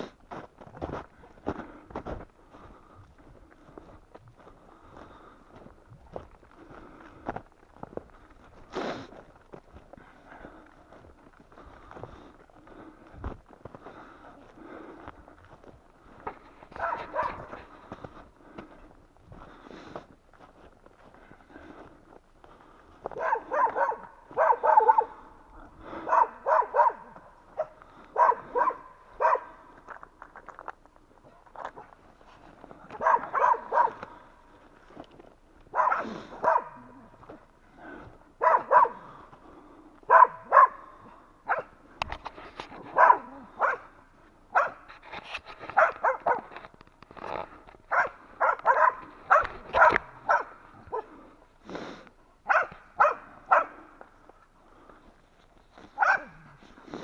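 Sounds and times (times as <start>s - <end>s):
dogs barking: 16.7s - 17.9s, 23.0s - 29.8s, 32.8s - 34.3s, 35.7s - 37.4s, 38.4s - 39.2s, 40.0s - 41.8s, 42.8s - 44.9s, 45.7s - 46.6s, 47.9s - 51.3s, 52.4s - 54.0s, 55.9s - 56.6s.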